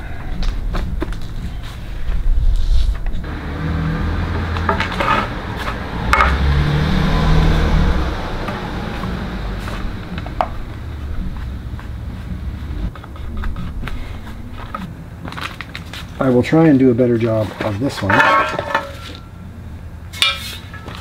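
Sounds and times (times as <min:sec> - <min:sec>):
low rumble: 0:00.0 - 0:15.8.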